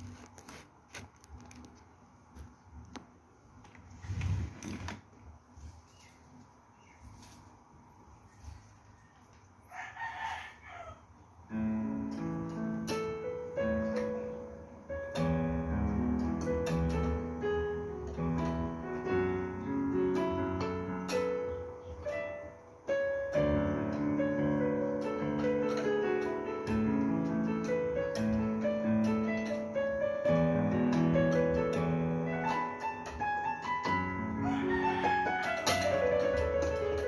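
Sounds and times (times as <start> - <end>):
piano playing chords and melody: 11.5 - 37.0.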